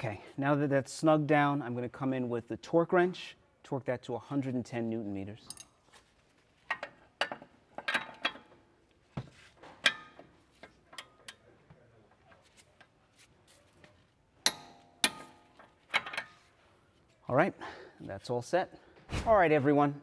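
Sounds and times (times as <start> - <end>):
metal tools clinking: 5.4 - 6.0.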